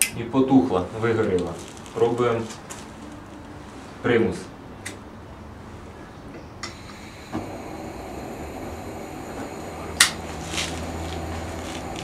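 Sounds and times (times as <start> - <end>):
stove burner roaring: 6.6 - 12.0.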